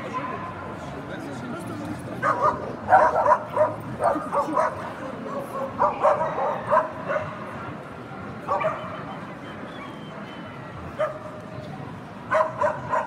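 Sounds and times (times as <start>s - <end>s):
murmur of crowd: 0.0s - 13.0s
dog yipping and barking: 12.3s - 13.0s.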